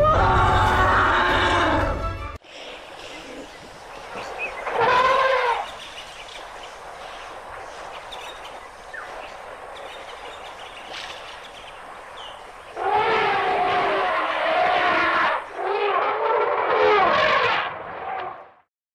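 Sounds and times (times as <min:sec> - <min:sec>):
elephant trumpeting: 0:00.0 - 0:02.2, 0:04.6 - 0:05.7, 0:12.8 - 0:17.7.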